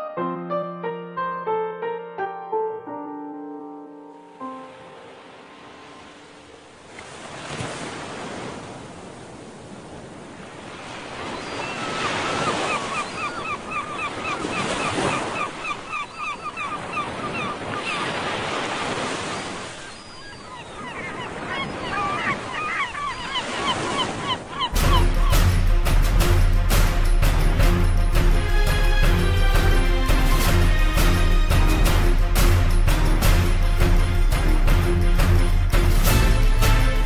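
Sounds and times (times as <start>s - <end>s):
music: 0.0s - 6.5s, 24.7s - 37.0s.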